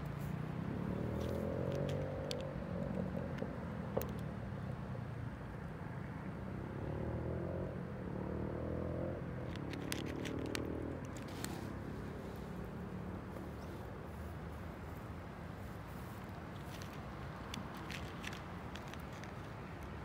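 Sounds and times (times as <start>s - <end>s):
cat crunching dry kibble: 9.4s - 12.5s, 15.6s - 20.0s.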